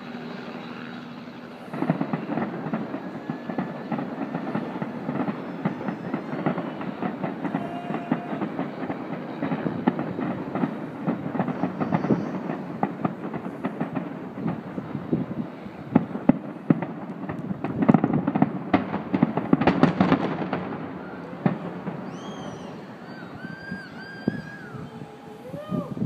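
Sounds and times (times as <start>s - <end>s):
distant fireworks bursts and booms: 0.0s - 26.0s
fireworks crackling: 0.0s - 26.0s.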